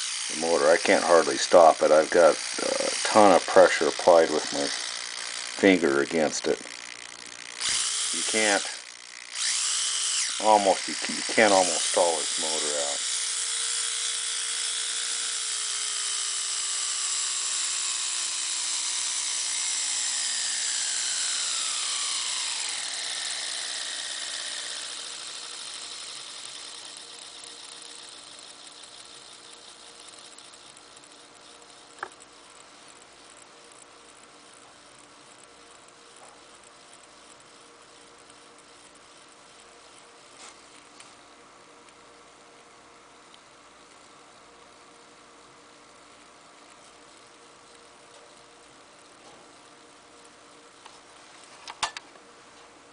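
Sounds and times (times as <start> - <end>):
faint steady hum: 0.0 - 16.5, 17.4 - 52.9
model locomotive motor whine: 0.0 - 42.6, 43.4 - 52.0
sharp click: 51.6 - 52.1.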